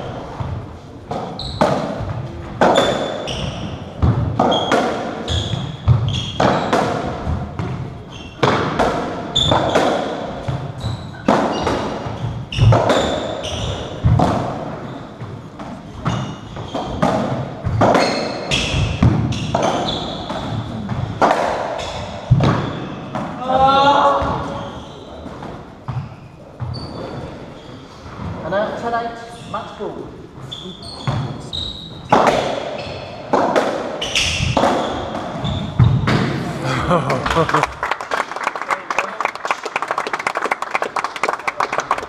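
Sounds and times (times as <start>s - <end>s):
shoes squeaking on wooden floor: 0.0s - 21.2s, 23.9s - 28.5s, 29.2s - 36.3s
ball strikes echoing: 32.1s - 36.5s.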